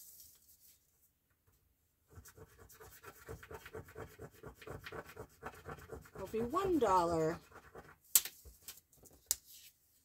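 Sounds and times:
scratch card scraping: 2.2s - 8.0s.

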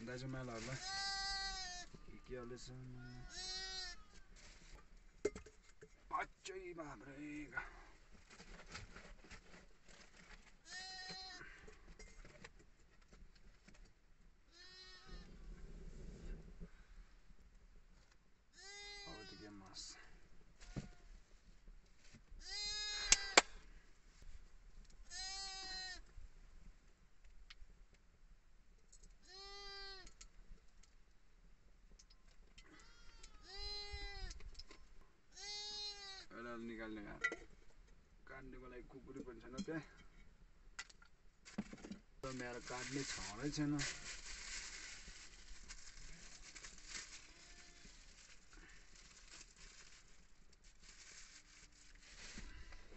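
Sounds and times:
sheep bleating: 0.8s - 2.2s, 3.0s - 4.3s, 14.5s - 15.3s, 18.6s - 19.4s, 22.4s - 23.4s, 25.1s - 26.0s, 29.2s - 30.1s, 35.3s - 36.4s.

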